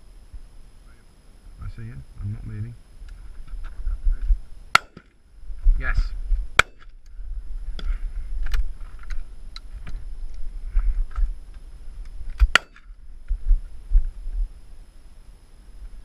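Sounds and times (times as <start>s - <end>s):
loud shotgun shot: 4.7s - 5.2s, 6.6s - 6.9s, 12.5s - 12.8s.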